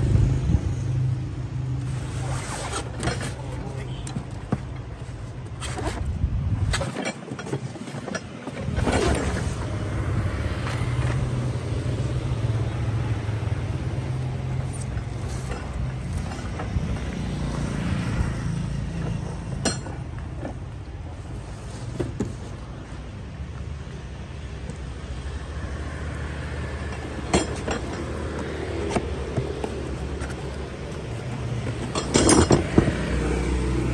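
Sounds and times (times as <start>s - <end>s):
cardboard rustling: 28.7s - 32.0s.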